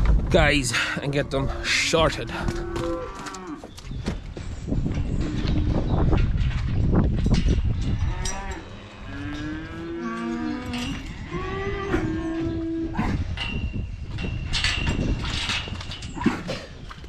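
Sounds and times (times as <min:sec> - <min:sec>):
calves mooing: 0:01.4 - 0:03.6, 0:08.0 - 0:13.0.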